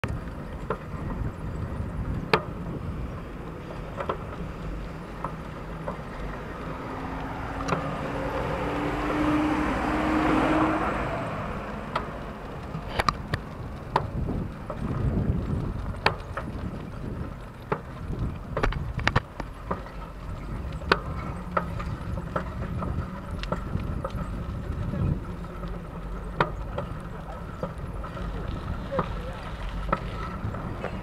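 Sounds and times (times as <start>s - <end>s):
bicycle clicks and rattles: 0.0s - 9.2s, 11.3s - 31.0s
wind rumble on microphone: 0.0s - 31.0s
car passing by: 4.7s - 13.9s.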